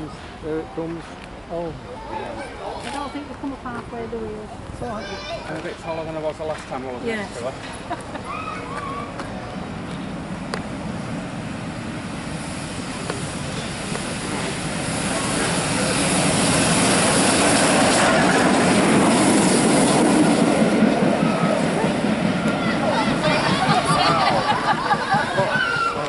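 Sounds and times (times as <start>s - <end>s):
steam locomotive passing at speed: 8.8s - 26.0s.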